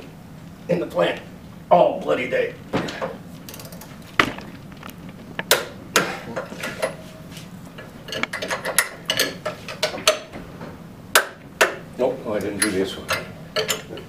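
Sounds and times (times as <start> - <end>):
wrench clicking on bolts: 12.4 - 14.0.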